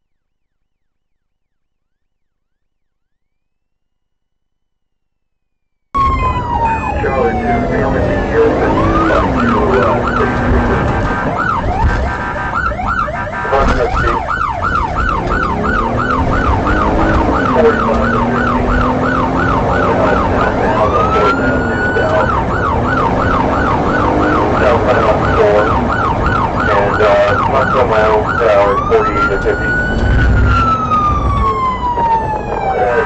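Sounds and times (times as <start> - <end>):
police siren: 6.0 - 33.0.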